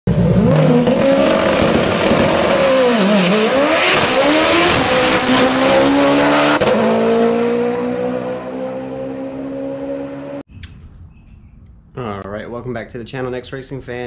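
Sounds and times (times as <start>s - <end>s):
car engine revving hard: 0.1s - 10.4s.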